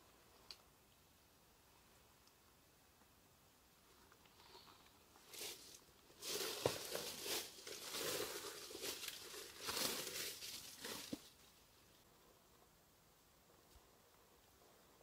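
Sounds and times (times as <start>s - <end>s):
footsteps crunching on forest floor: 5.2s - 11.4s.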